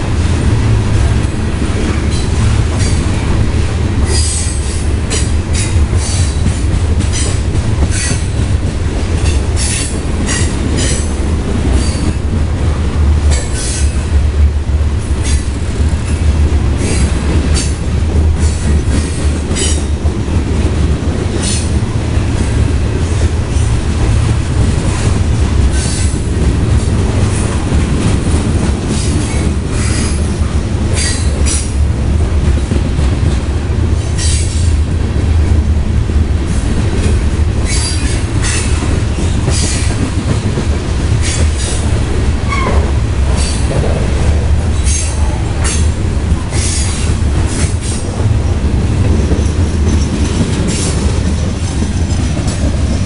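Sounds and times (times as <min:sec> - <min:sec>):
train wheels rumbling on rail: 0:00.0 - 0:53.0
wheel squeals and clanks: 0:37.6 - 0:38.7, 0:39.5 - 0:39.9, 0:42.5 - 0:42.8, 0:46.6 - 0:48.0.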